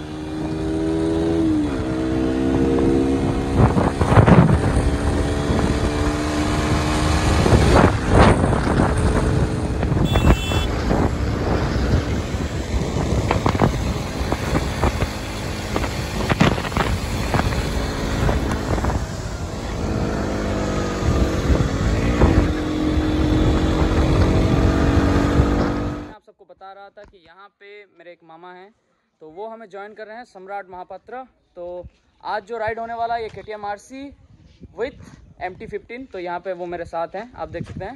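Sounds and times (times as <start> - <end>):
wind rushing over microphone: 0.4 - 26.2, 34.1 - 35.9
motorcycle engine running: 3.5 - 25.1.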